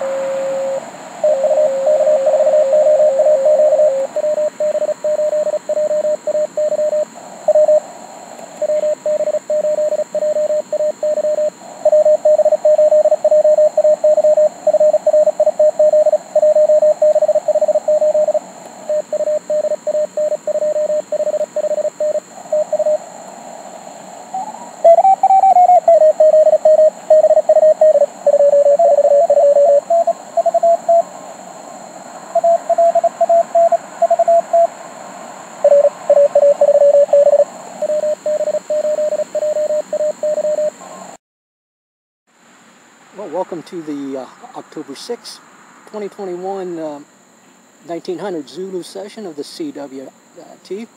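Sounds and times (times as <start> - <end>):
morse code tones: 0.0 - 7.8, 8.6 - 23.0, 24.8 - 31.0, 32.4 - 34.7, 35.6 - 40.8
radio hiss: 0.0 - 41.2, 43.1 - 50.9.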